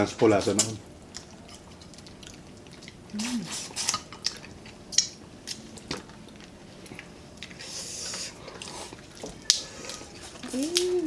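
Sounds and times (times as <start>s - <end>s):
chewing: 1.0s - 11.0s.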